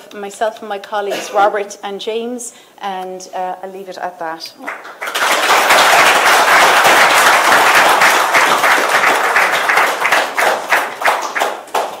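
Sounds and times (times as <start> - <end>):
audience applauding: 4.6 - 12.0.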